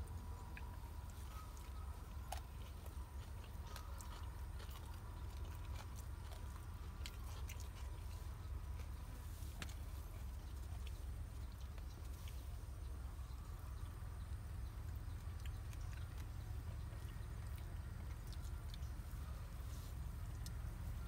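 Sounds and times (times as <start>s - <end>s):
chewing: 0.0s - 21.0s
steady low hum: 0.0s - 21.0s.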